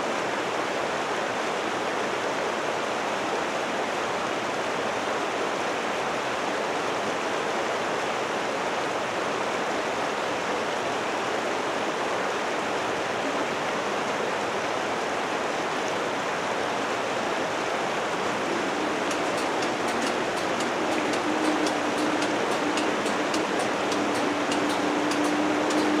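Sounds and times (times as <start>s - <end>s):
steady rushing noise: 17.0s - 26.0s
barrier drive hum: 18.0s - 26.0s
sharp clicks: 18.6s - 26.0s.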